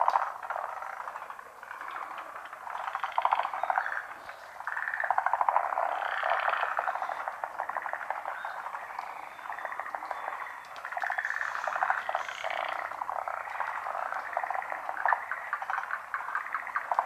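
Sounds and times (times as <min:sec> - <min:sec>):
frogs croaking chorus: 0:00.0 - 0:17.0.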